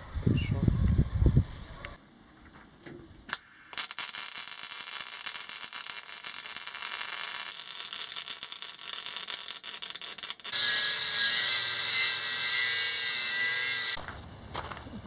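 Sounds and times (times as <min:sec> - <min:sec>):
welding arc crackling: 0:03.3 - 0:14.7.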